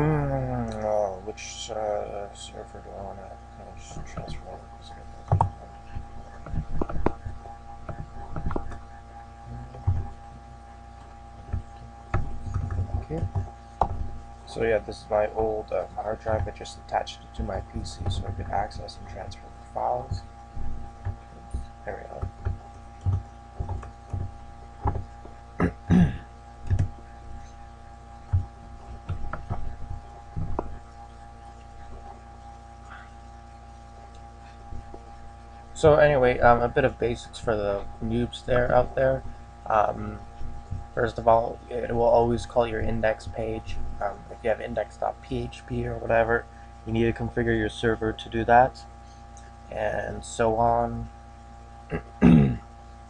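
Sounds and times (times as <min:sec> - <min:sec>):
electrical hum: 0:00.0 - 0:53.0.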